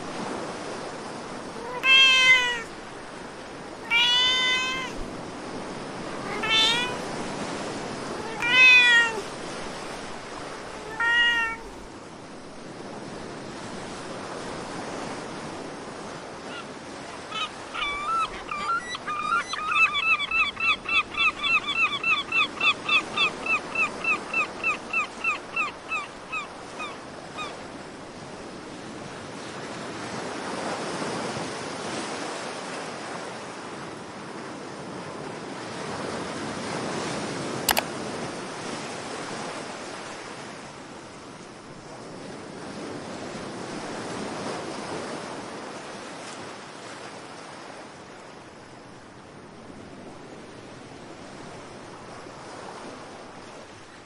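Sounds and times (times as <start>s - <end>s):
cat meow: 1.6s - 2.8s, 3.6s - 5.2s, 6.0s - 7.4s, 8.0s - 9.4s, 10.5s - 11.8s, 16.5s - 20.2s
gull yelping calls: 1.6s - 2.8s, 3.7s - 5.1s, 6.0s - 7.2s, 8.0s - 9.4s, 10.6s - 11.8s, 16.5s - 27.5s
sharp click: 37.7s - 37.9s.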